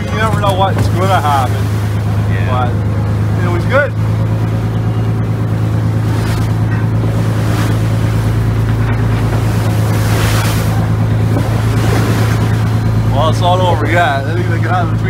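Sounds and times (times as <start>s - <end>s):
boat engine humming: 0.0s - 15.0s
wind and wake water rushing: 0.0s - 15.0s.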